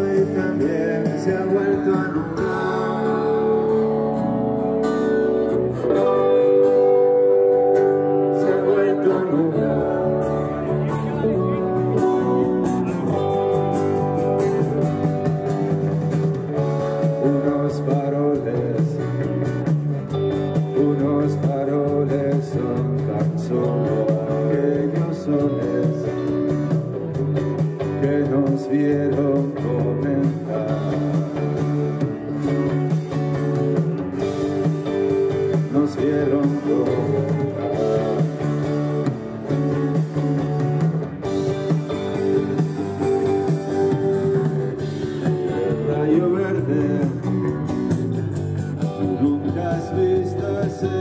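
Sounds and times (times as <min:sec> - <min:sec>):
person singing: 0:00.0 - 0:04.3, 0:07.8 - 0:14.4, 0:16.6 - 0:26.5, 0:27.8 - 0:32.0, 0:35.3 - 0:39.0, 0:44.3 - 0:47.7, 0:48.8 - 0:51.0
electric guitar: 0:00.0 - 0:51.0
drum beat: 0:30.4 - 0:51.0.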